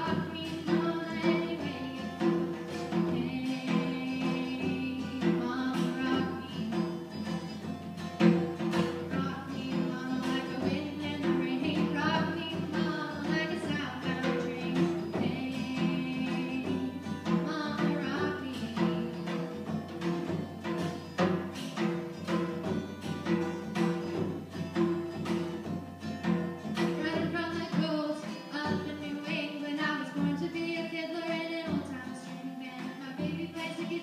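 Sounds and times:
person singing: 0:00.0 - 0:07.1, 0:09.0 - 0:19.4, 0:27.0 - 0:34.0
acoustic guitar: 0:00.0 - 0:34.0.

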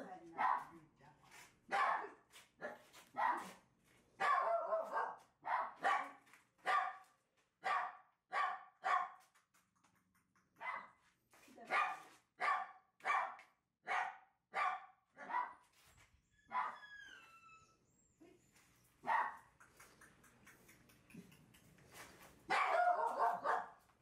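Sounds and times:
puppy whining: 0:16.2 - 0:18.2
puppy yapping: 0:16.5 - 0:17.5.

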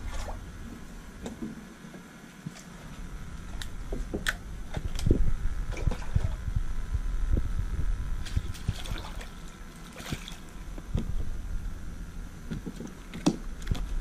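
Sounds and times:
steady low rumble: 0:00.0 - 0:14.0
water splashes: 0:08.2 - 0:10.6.

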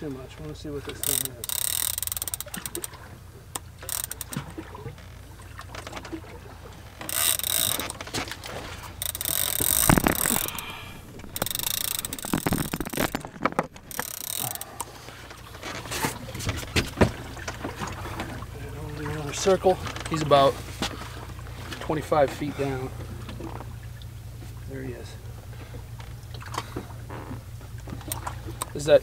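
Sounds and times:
fishing reel gears clicking: 0:00.9 - 0:05.2, 0:06.8 - 0:08.2, 0:08.8 - 0:15.0.

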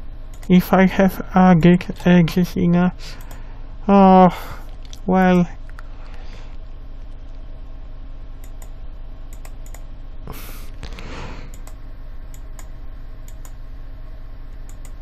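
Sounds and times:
steady low hum: 0:00.0 - 0:15.0
keyboard and mouse clicking: 0:00.3 - 0:00.5, 0:08.4 - 0:09.9, 0:10.8 - 0:13.6, 0:14.6 - 0:15.0.

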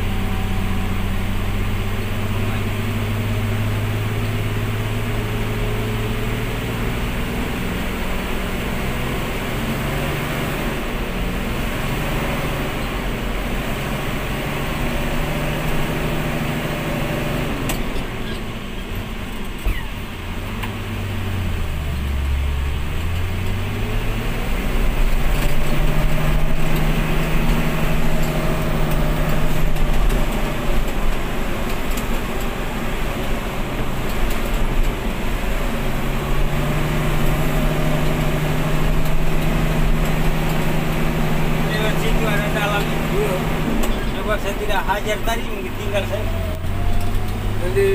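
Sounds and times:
truck engine from inside cab: 0:00.0 - 0:47.9.

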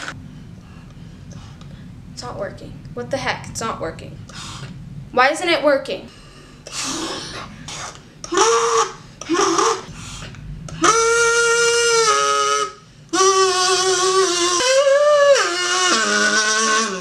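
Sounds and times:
kazoo buzzing notes: 0:06.7 - 0:17.0.

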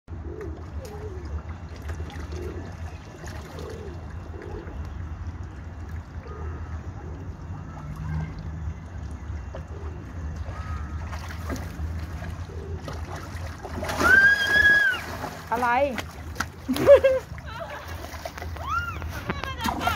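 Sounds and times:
pond water gurgling and lapping: 0:00.1 - 0:19.9.

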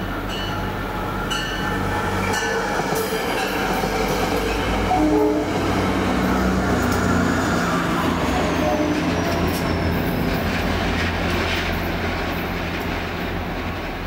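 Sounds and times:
diesel locomotive drone: 0:00.0 - 0:14.0
train coaches rumbling over rails: 0:00.0 - 0:14.0
wheel squeals and clicks: 0:08.5 - 0:10.6.

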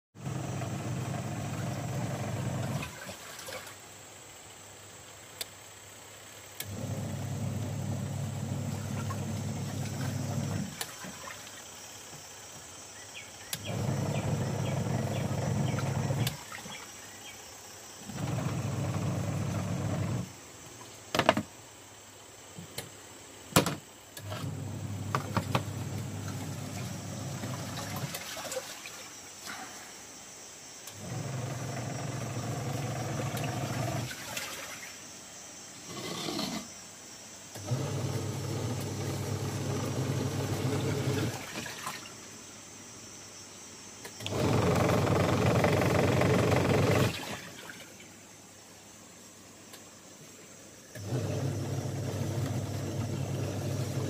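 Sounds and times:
washing machine motor humming: 0:00.2 - 0:03.7, 0:06.6 - 0:12.2, 0:13.4 - 0:17.3, 0:18.0 - 0:20.4, 0:23.6 - 0:29.1, 0:30.9 - 0:34.8, 0:37.6 - 0:42.1, 0:44.1 - 0:47.9, 0:50.9 - 0:54.0.

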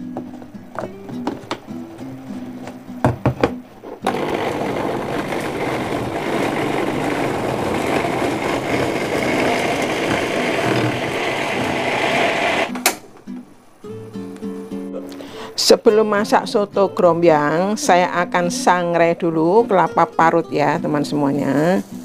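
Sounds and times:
knocks: 0:03.0 - 0:04.2
electric blender grinding: 0:04.0 - 0:12.7.

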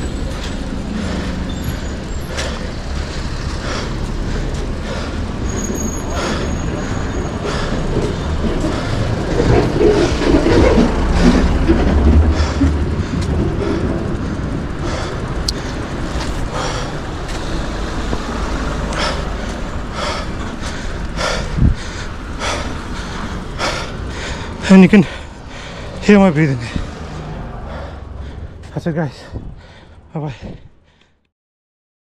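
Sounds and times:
vehicle engine passing: 0:00.0 - 0:30.1
cyclist breathing hard: 0:00.0 - 0:31.3.

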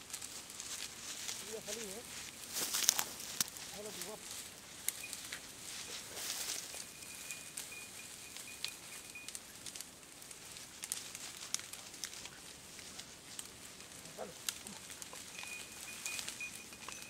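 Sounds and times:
crackles and twig snaps: 0:00.0 - 0:17.0
dry grass rustling: 0:00.0 - 0:17.0.

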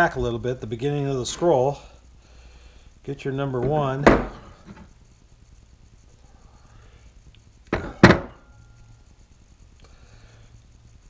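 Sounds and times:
background hiss: 0:00.0 - 0:11.0
faint low hum: 0:00.0 - 0:11.0.

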